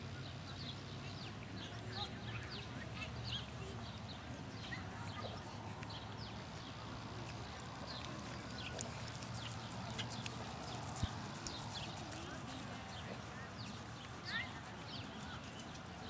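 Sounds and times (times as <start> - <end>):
horse hoofbeats trotting on grass: 5.0 - 16.0.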